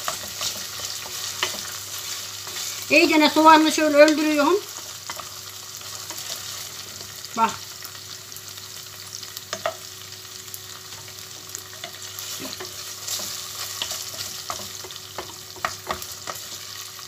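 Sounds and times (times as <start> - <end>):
wooden spoon scraping a pot: 0.0 - 3.0
meat and vegetables sizzling in a pot: 0.0 - 17.0.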